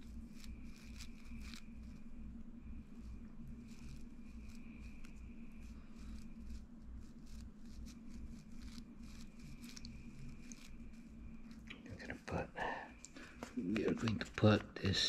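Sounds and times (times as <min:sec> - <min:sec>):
faint high whine: 0:00.0 - 0:15.0
steady low hum: 0:00.0 - 0:15.0
fingers rustling tinsel: 0:03.0 - 0:11.7.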